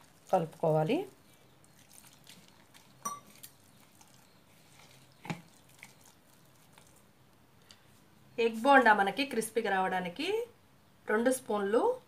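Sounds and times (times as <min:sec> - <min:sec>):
hand squishing batter: 0:00.0 - 0:07.2
glass bowl clinks: 0:03.0 - 0:03.4.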